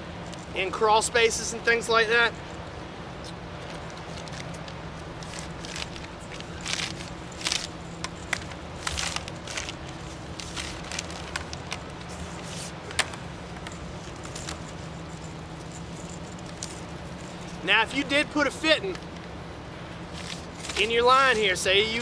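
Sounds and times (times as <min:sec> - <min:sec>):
steady low hum: 0:00.0 - 0:22.0
plastic rustling and crackling: 0:03.6 - 0:17.6, 0:20.1 - 0:21.5.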